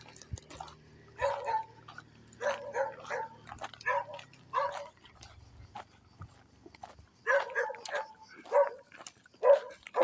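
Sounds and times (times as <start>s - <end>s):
dog barking: 1.2s - 5.0s, 7.2s - 10.0s.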